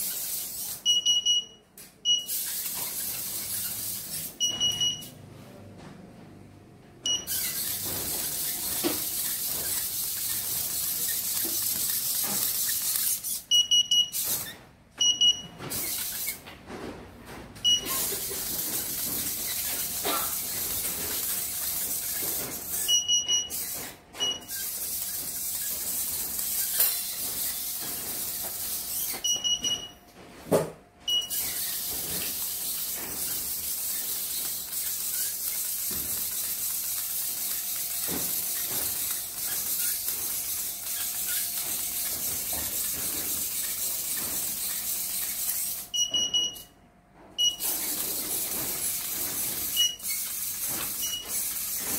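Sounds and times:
short paired electronic beeps: 0.8 - 2.5, 4.4 - 5.1, 7.1 - 7.4, 13.5 - 14.2, 15.0 - 15.5, 17.6 - 18.0, 29.2 - 30.0, 31.1 - 31.4, 45.9 - 46.7, 47.4 - 47.6.

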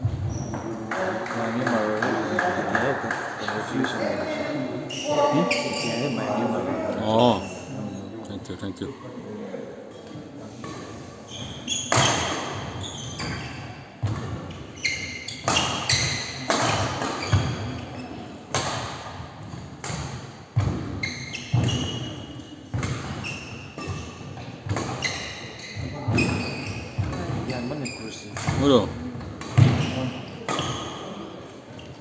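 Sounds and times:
shoe squeaks on floor: 0.0 - 0.8, 4.3 - 8.1, 10.7 - 18.3, 20.8 - 28.8, 29.6 - 32.0
racket striking shuttlecock: 18.5 - 19.0, 19.8 - 20.9.

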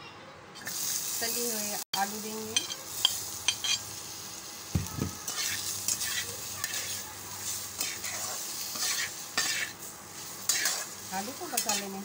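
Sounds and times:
potatoes sizzling in hot oil: 0.6 - 12.0
spatula scraping a pan: 5.2 - 12.0.

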